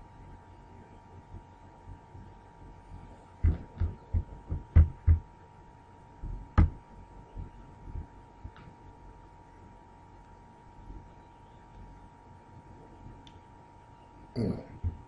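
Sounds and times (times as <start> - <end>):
faint steady hum: 0.0 - 15.0
dull thumps: 3.4 - 5.2, 6.2 - 6.8
sharp knock: 6.6 - 6.8.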